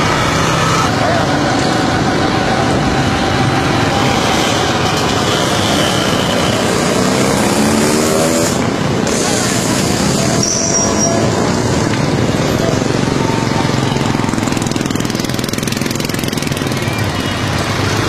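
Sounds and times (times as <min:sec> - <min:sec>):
voices: 0:00.0 - 0:07.6
car engines running: 0:00.0 - 0:18.0.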